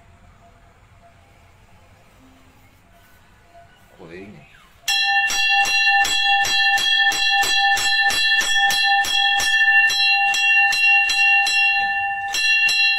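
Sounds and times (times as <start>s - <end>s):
temple bell ringing: 4.6s - 12.9s.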